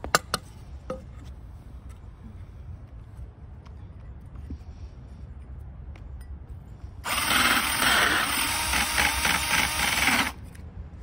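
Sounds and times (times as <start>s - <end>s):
drill with hole saw cutting wood: 7.0s - 10.4s.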